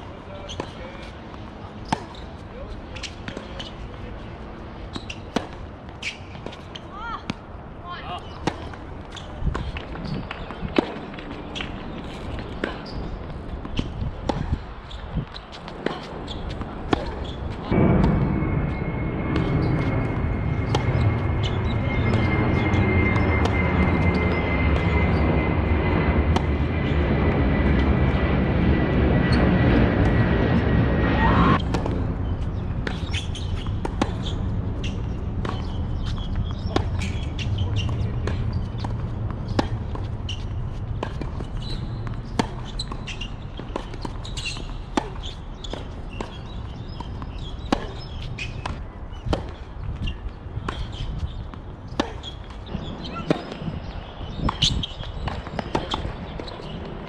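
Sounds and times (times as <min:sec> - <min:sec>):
loud steady high tone: 0:17.8 - 0:25.7
tennis ball bouncing and struck: 0:20.7 - 0:23.6, 0:31.6 - 0:56.8.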